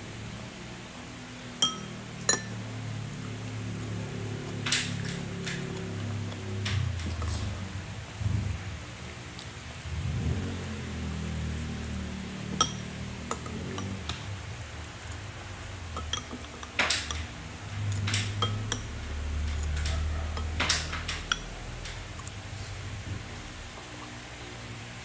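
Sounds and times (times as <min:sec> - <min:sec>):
steady low hum: 0:00.0 - 0:25.0
spoon tapping and scraping bowl: 0:01.6 - 0:02.6, 0:12.5 - 0:14.2, 0:16.0 - 0:22.4.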